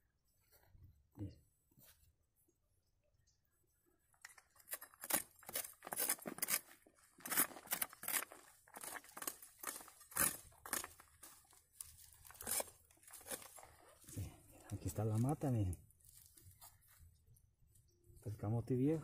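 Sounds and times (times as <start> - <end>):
machete chopping into dry earth: 4.7 - 13.6.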